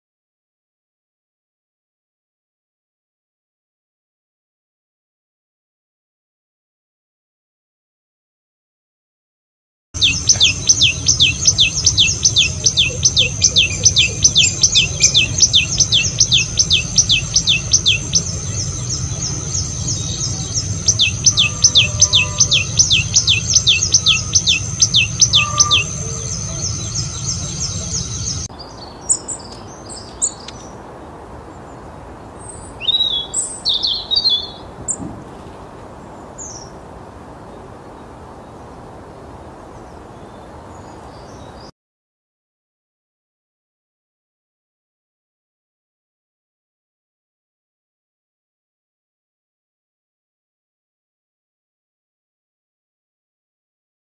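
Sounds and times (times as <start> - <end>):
steady high tone: 10.0 - 28.5
scattered bird chirps: 10.0 - 30.8, 32.4 - 35.5
songbird calling: 10.0 - 30.8, 31.5 - 36.8, 39.7 - 41.7.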